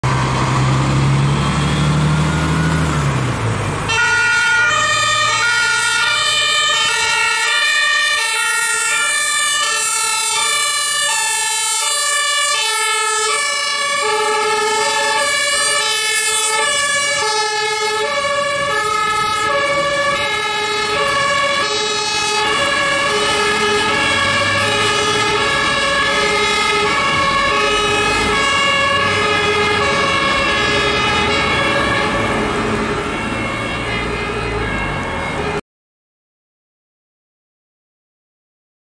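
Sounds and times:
two-tone sirens: 0.0 - 35.6
vehicle engine rumbling: 0.0 - 35.6.

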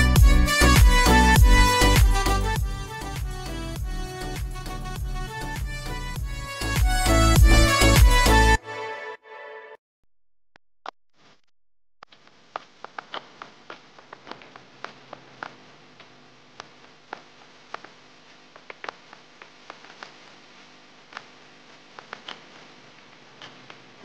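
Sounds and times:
pie crackling and popping: 12.0 - 20.5.

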